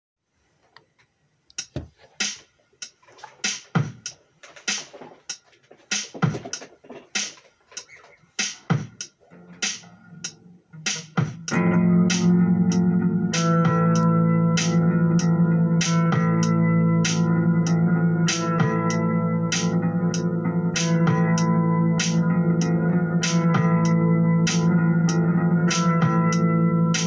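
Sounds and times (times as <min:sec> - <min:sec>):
electric bass guitar riff: 0:09.3 - 0:27.0.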